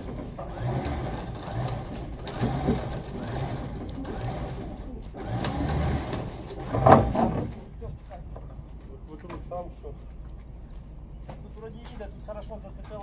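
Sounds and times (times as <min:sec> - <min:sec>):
engine running with clatter: 0:00.0 - 0:07.6.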